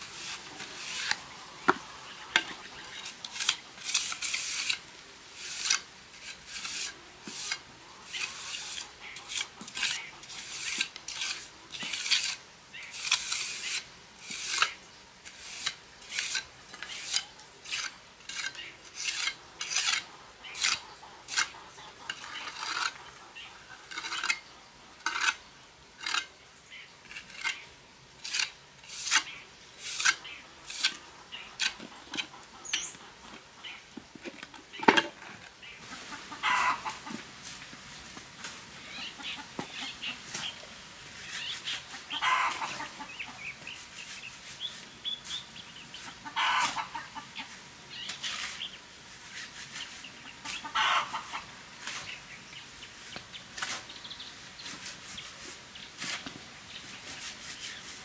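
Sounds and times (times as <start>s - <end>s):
hand tool rasping and scraping: 0.0s - 4.8s, 5.4s - 23.1s, 23.7s - 24.4s, 25.0s - 25.4s, 26.0s - 26.3s, 28.2s - 33.5s.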